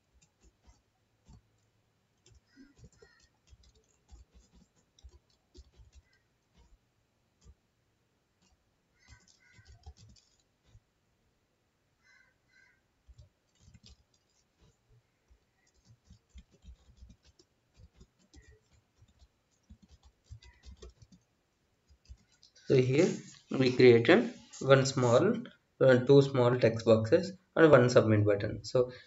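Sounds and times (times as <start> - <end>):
computer keyboard typing: 0.0 - 6.8, 8.4 - 10.8, 13.0 - 25.2.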